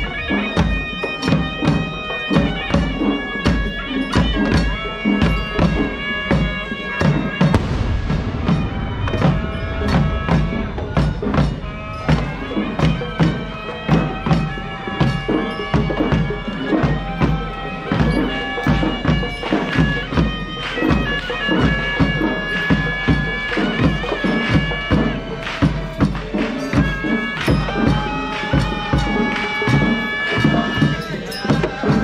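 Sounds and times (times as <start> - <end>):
shrill reed pipe: 0.0 - 25.4
drums beating fast rhythm: 0.0 - 32.0.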